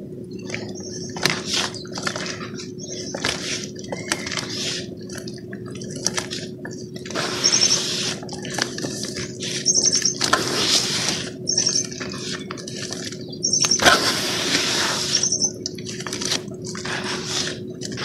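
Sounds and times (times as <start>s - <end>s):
bird chirp trills: 0.3s - 4.9s, 6.7s - 8.5s, 9.1s - 13.9s, 14.8s - 15.6s.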